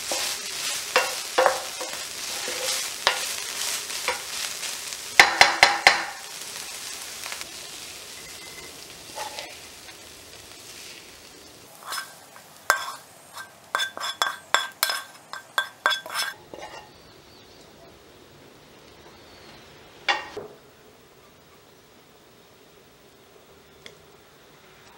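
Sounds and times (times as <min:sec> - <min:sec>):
pan and plate clinking: 0:00.0 - 0:06.3, 0:08.1 - 0:10.0, 0:11.8 - 0:17.0, 0:20.1 - 0:20.5
spatula scraping a pan: 0:00.0 - 0:10.0, 0:11.7 - 0:17.0
meat sizzling in a frying pan: 0:00.0 - 0:16.6.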